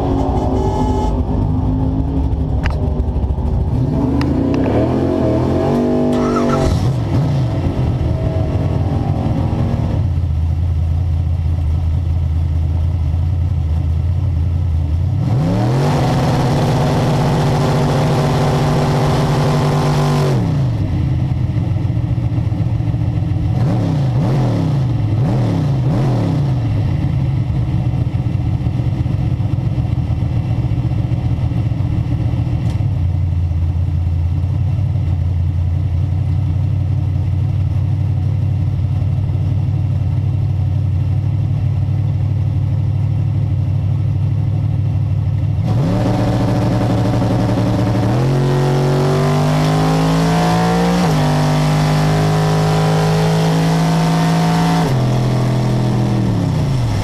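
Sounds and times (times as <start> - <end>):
race car engine revving: 0.0 - 10.5, 15.1 - 20.8, 45.6 - 57.0.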